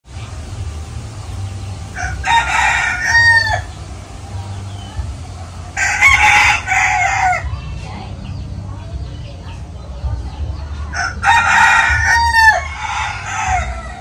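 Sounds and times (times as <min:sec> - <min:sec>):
steady low rumble: 0:00.0 - 0:14.0
rooster crowing: 0:02.0 - 0:03.8, 0:05.8 - 0:07.5, 0:11.0 - 0:14.0.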